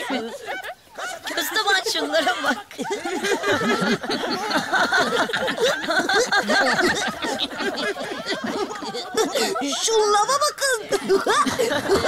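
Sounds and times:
cartoon characters laughing: 0:02.4 - 0:12.0.

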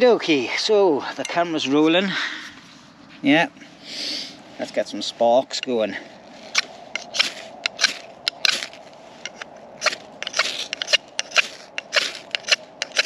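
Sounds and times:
knife scraping ferro rod: 0:06.4 - 0:13.0.

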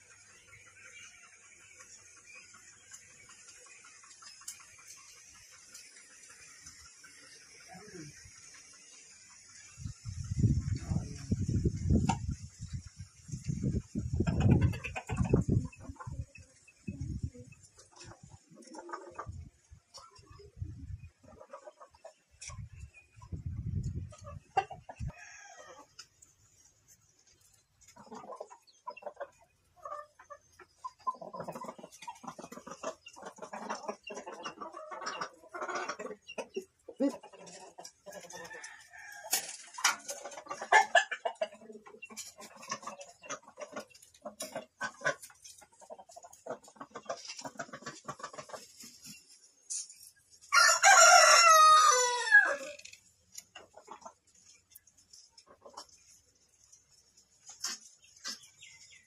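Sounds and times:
rooster crowing: 0:50.5 - 0:52.8.

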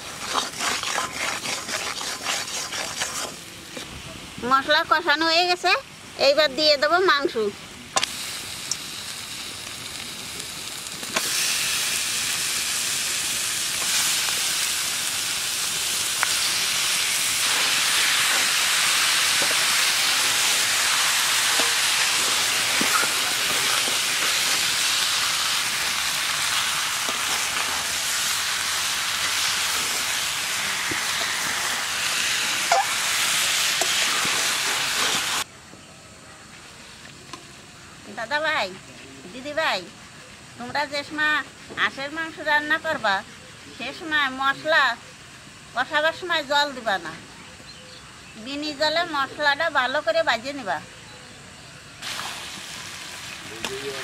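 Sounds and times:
metal spatula scraping: 0:00.0 - 0:03.4
meat sizzling in hot oil: 0:00.0 - 0:07.2, 0:08.0 - 0:35.5, 0:52.0 - 0:54.0.

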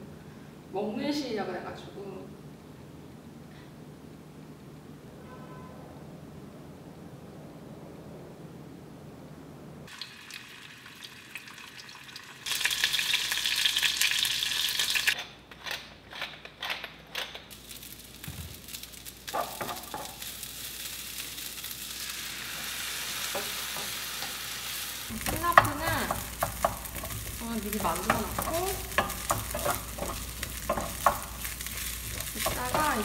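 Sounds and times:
food sizzling in hot oil: 0:09.9 - 0:15.2, 0:17.5 - 0:33.0
wooden spoon stirring rice: 0:25.1 - 0:33.0.

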